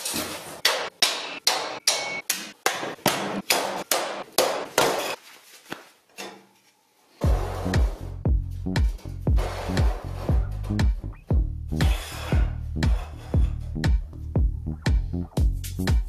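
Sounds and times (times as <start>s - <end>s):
hammer striking metal: 0.6s - 5.2s.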